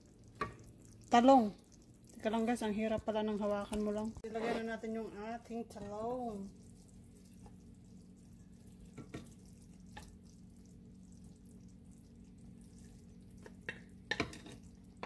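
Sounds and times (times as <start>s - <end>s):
faint simmering: 0.0s - 15.0s
low steady hum: 0.0s - 15.0s
wooden spatula taps and scrapes: 0.4s - 0.7s, 8.9s - 10.2s, 13.4s - 14.7s.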